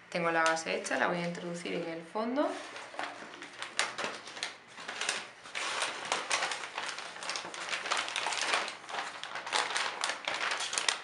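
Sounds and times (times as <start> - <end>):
metallic paper bag crinkling: 2.4 - 11.0.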